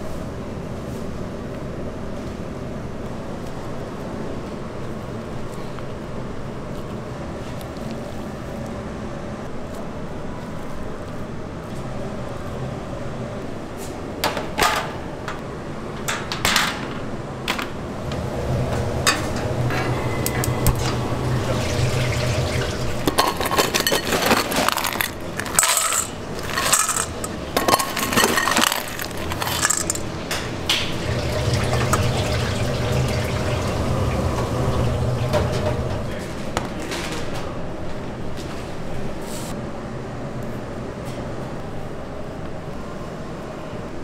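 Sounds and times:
low machine hum: 14.8 - 44.0
pans and utensils clattering: 19.1 - 37.4.

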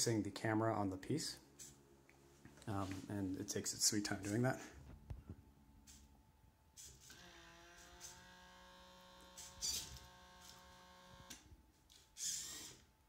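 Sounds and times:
robot arm servo motors whining: 7.0 - 11.4, 12.2 - 12.8.

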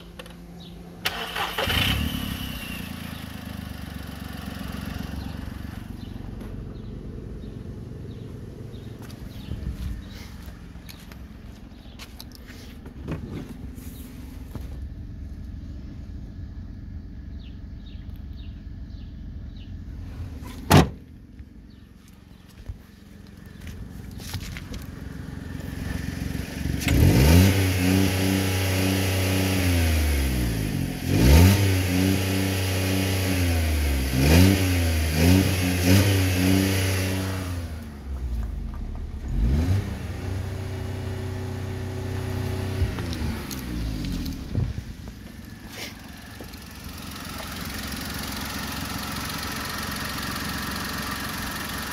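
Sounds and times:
car engine revving: 24.8 - 51.9.

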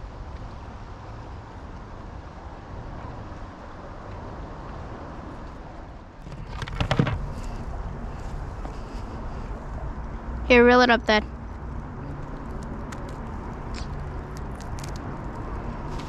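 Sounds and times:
low outdoor rumble: 0.0 - 16.0
camera handling knocks and scrapes: 6.2 - 7.6.

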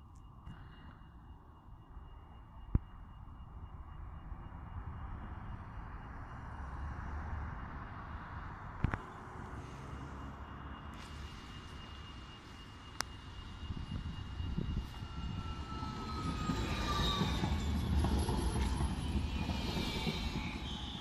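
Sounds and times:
tram wheels rumbling on rails: 10.6 - 21.0
electric drive whine: 10.9 - 18.8.

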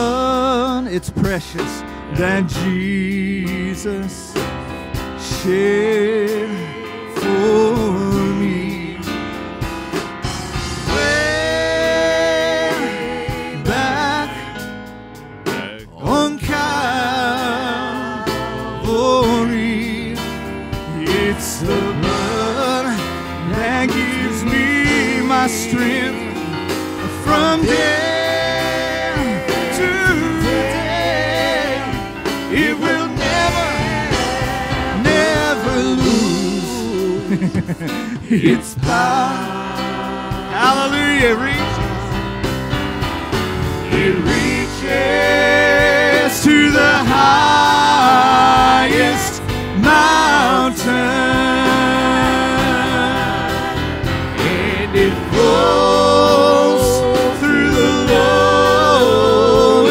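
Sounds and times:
band playing gospel hymn: 0.0 - 59.9
singers with vibrato: 43.9 - 59.9.

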